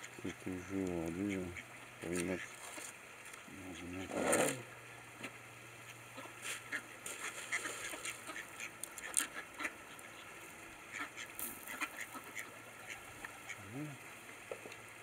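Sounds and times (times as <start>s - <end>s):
soft duck quacks: 0.0s - 2.9s, 3.5s - 4.6s, 5.2s - 10.3s, 10.9s - 14.1s
duck bills pecking concrete: 6.2s - 10.2s, 10.9s - 13.0s.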